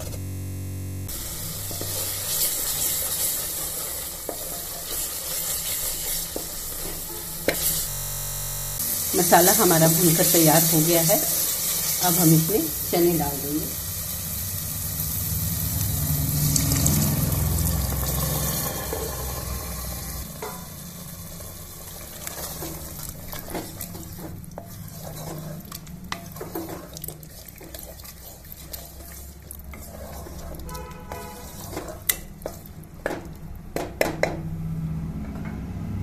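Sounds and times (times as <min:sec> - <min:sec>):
food sizzling in pot: 0:00.0 - 0:34.3.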